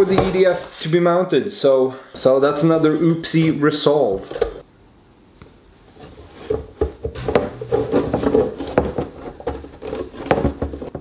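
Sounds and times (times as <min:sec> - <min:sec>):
plastic parts clicking and knocking: 0:06.5 - 0:11.0.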